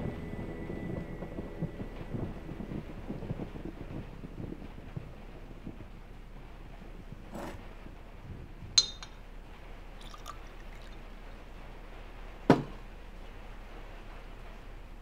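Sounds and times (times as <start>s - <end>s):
glass clinking on glass: 8.8s - 9.2s, 10.0s - 11.0s
liquid pouring into glass: 10.0s - 11.0s.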